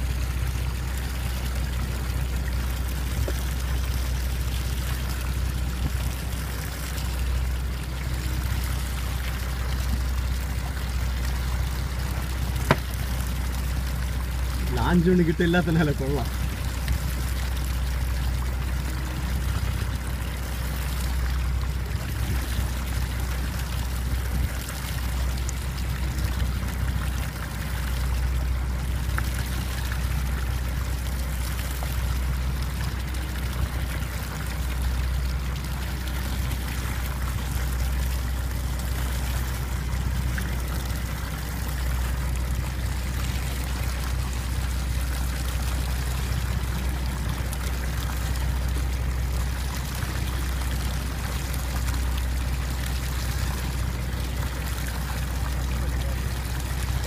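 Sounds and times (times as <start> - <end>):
boat engine humming: 0.0 - 57.0
water splashing against hull: 0.0 - 57.0.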